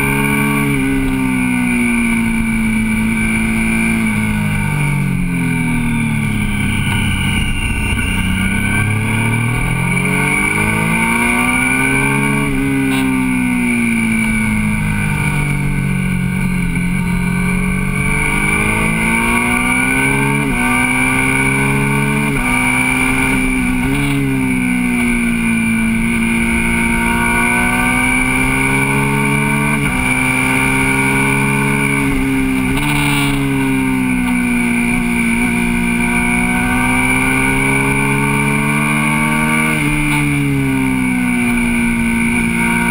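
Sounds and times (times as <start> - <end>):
motorcycle engine revving: 0.0 - 42.9
wind rushing: 6.1 - 11.1.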